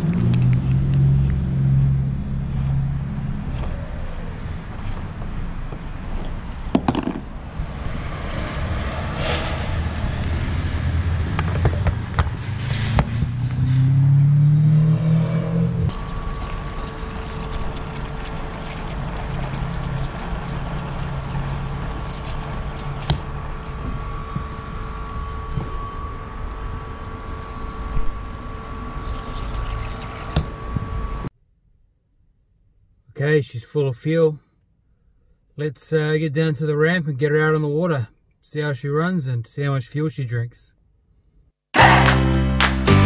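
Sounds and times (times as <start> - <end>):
low rumble: 0.0 - 29.2
rising whine: 0.0 - 31.3
fuel pump humming: 15.9 - 31.3.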